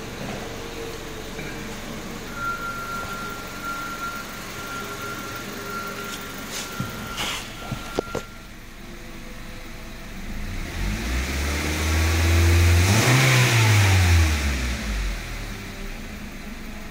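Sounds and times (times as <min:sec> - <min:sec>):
car engine revving: 0:08.9 - 0:16.7.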